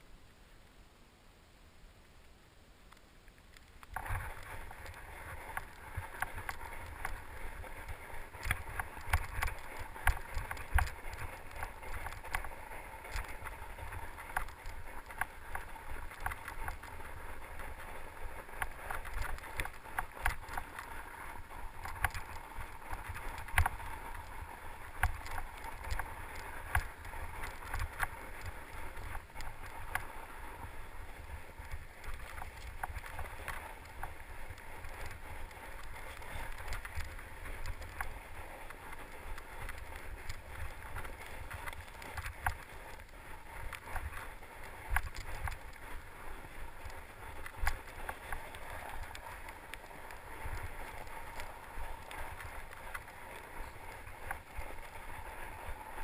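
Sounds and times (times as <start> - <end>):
bike tyres rolling on snow: 0.0 - 1.0, 2.0 - 56.0
bike knocking and rattling: 3.9 - 30.1
wind rumble on microphone: 3.9 - 56.0.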